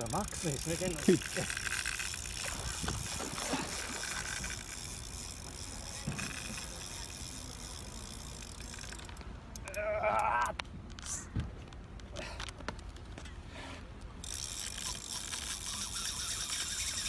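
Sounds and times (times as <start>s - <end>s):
fishing reel drag clicking: 0.0s - 9.8s, 14.2s - 17.0s.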